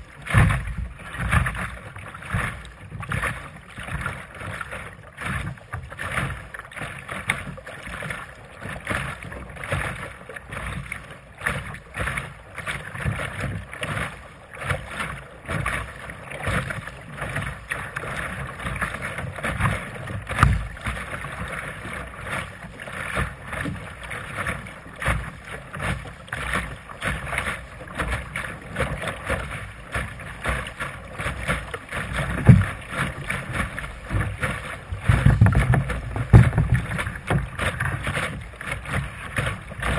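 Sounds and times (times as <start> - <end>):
wind rumbling on microphone: 0.0 - 4.0, 31.4 - 39.9
water splashing against boat hull: 0.0 - 39.9.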